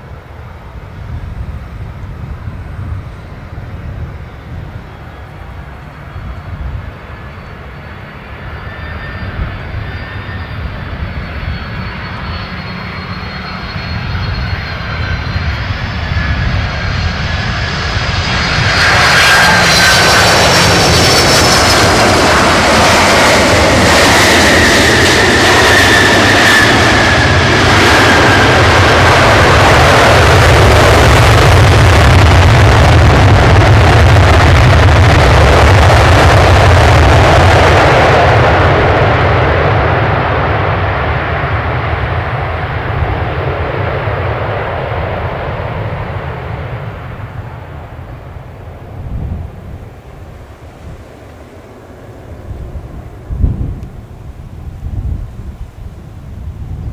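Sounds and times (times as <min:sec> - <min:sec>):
jet engine whine: 0:00.0 - 0:56.9
loud jet noise: 0:00.0 - 0:56.9
deep rumble: 0:13.0 - 0:50.0.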